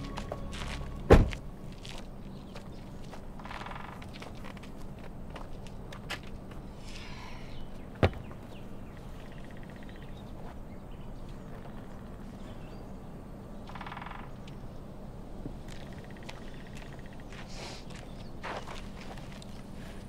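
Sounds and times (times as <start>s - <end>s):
steady low hum: 0.0s - 20.0s
faint bird calls: 6.7s - 13.0s, 13.6s - 14.9s, 15.7s - 19.0s.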